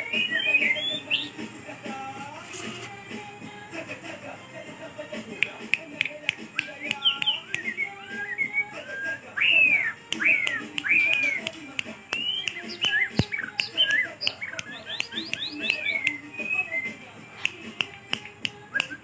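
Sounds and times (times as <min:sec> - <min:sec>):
bird singing whistled phrases: 0:00.0 - 0:01.4, 0:06.6 - 0:11.5, 0:12.1 - 0:17.0
bird sharp clicks: 0:05.4 - 0:08.0, 0:09.4 - 0:16.7, 0:17.4 - 0:19.0.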